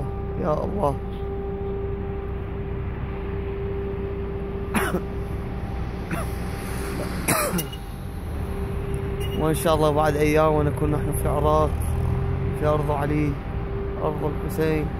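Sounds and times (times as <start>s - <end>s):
road traffic rumble: 0.0s - 14.9s
person clearing throat: 4.7s - 5.1s, 6.1s - 6.4s, 7.3s - 7.8s.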